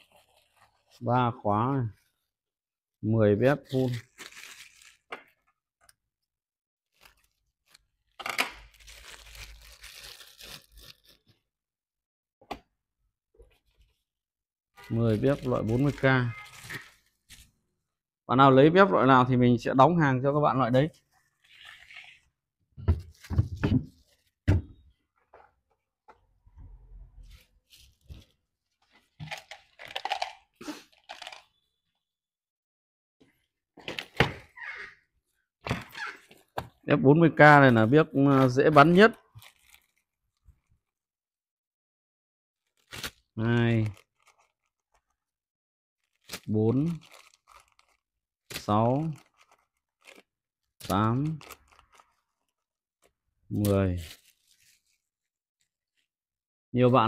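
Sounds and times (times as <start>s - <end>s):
packaging rustling and tearing: 0.0s - 1.0s, 3.7s - 5.4s, 6.9s - 11.4s, 14.8s - 17.5s, 39.3s - 41.0s, 42.6s - 45.3s, 46.0s - 56.1s.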